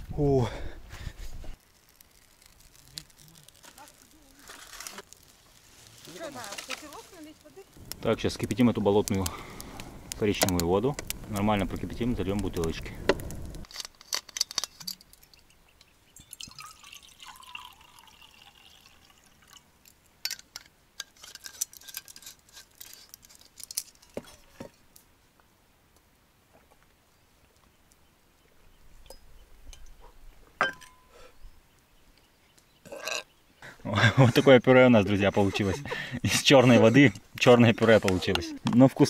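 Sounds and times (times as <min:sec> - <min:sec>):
clinks and knocks: 0:13.7 - 0:15.4, 0:30.6 - 0:31.1
water pouring and dripping: 0:16.2 - 0:21.7.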